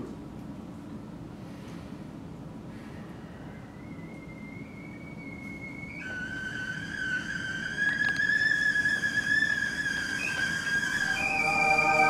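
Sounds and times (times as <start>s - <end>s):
whistle-like sustained tone: 3.1s - 12.0s.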